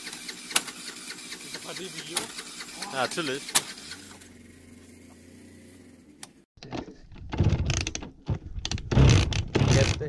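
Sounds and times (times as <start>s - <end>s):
moped engine sputtering: 0.0s - 6.4s.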